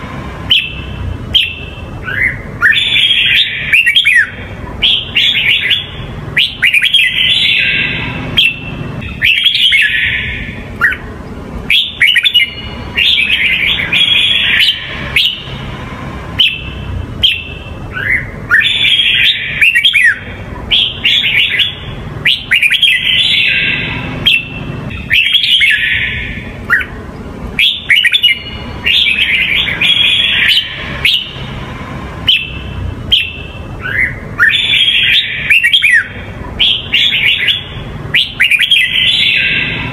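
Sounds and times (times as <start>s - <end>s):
bird singing warbled phrases: 0.0s - 39.9s.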